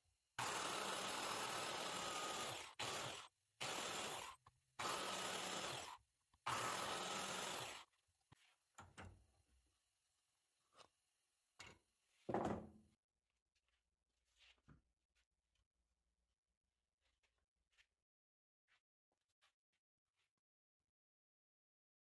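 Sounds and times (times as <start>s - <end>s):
biscuit joiner cutting wood: 0.4s - 7.9s.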